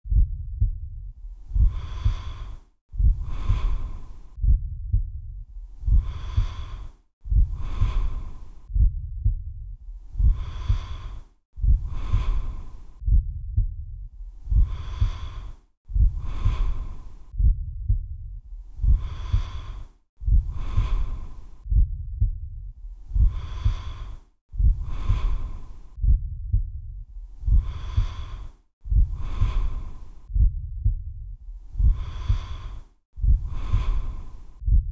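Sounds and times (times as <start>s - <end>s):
low pulsing rumble: 0.0s - 1.8s, 4.4s - 6.2s, 8.7s - 10.5s, 13.0s - 14.0s, 17.4s - 18.3s, 21.7s - 22.6s, 26.0s - 27.0s, 30.3s - 32.0s
slow deep breathing: 0.1s - 34.9s.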